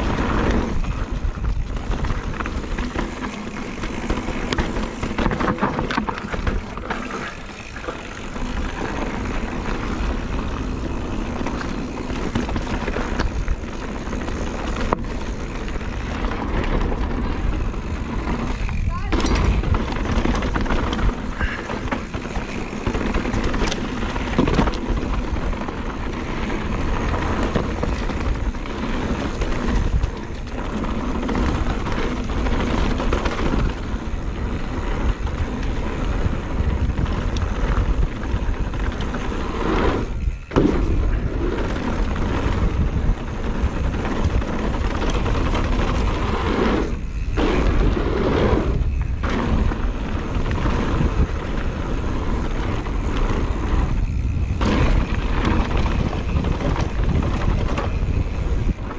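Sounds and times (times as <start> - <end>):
bike tyres rolling over dirt: 0.0 - 58.9
wind rumbling on microphone: 0.0 - 58.9.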